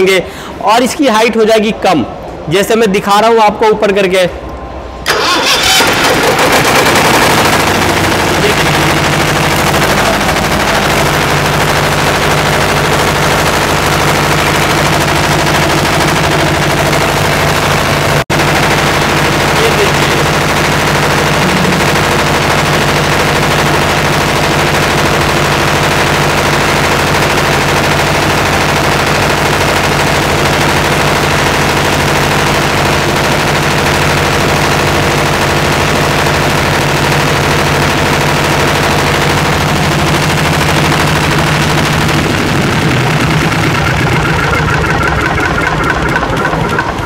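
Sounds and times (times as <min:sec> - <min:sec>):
diesel engine clattering: 0:05.0 - 0:47.0.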